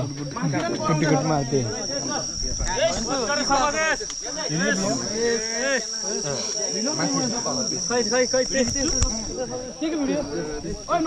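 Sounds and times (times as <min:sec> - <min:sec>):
overlapping voices: 0:00.0 - 0:07.8
crickets chirring: 0:00.0 - 0:11.0.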